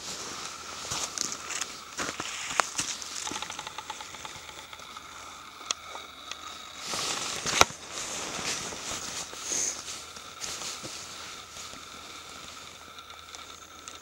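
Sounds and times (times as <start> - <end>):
footsteps crunching on snow and leaves: 0.0 - 3.6, 6.8 - 12.3.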